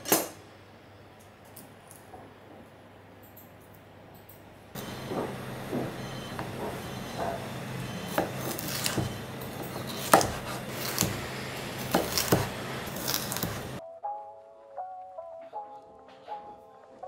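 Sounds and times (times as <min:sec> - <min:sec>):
knife knocking on cutting board: 0:11.8 - 0:12.5.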